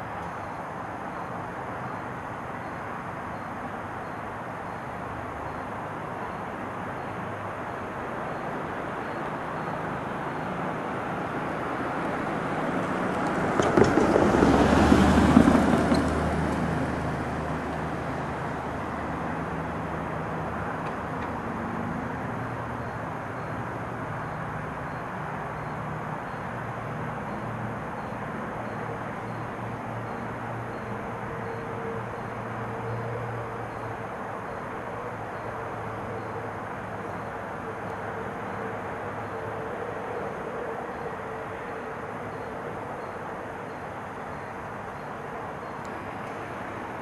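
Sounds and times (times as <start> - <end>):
outdoor background hiss: 0.0 - 47.0
car passing: 7.2 - 24.9.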